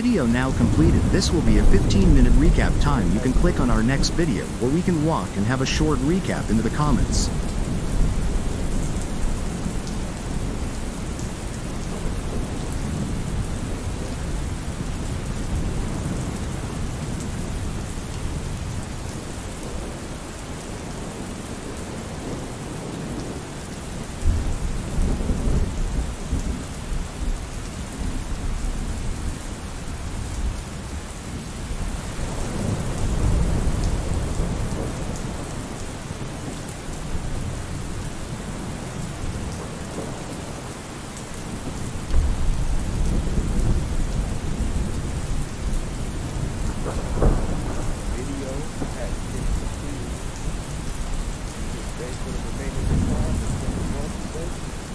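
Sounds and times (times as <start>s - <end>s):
thunder rolling: 0.0s - 4.7s, 41.6s - 50.9s, 52.2s - 54.6s
steady rain hissing: 0.0s - 54.9s.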